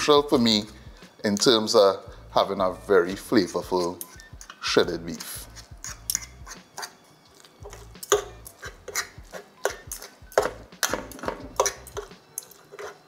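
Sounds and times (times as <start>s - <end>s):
forks scraping against pot: 3.6s - 13.0s.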